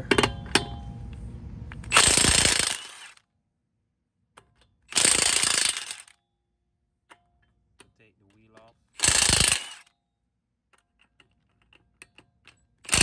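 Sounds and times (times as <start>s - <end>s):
impact wrench hammering: 0.0s - 0.9s, 4.4s - 6.2s, 7.1s - 9.9s, 10.7s - 13.0s.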